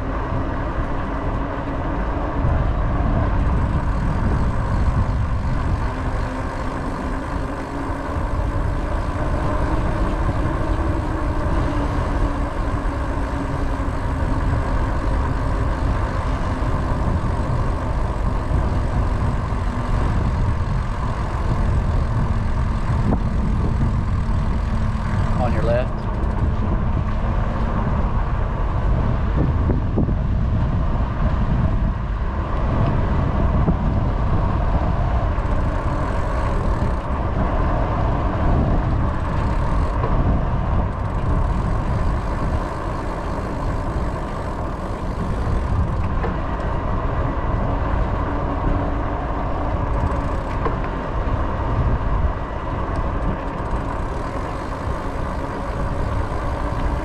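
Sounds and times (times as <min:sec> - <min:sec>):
wheels rolling on asphalt: 0:00.0 - 0:57.0
wind rumble on microphone: 0:00.0 - 0:57.0.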